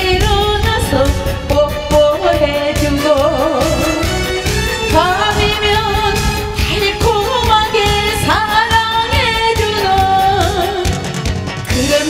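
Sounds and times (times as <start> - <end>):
woman singing into a microphone: 0.0 - 12.0.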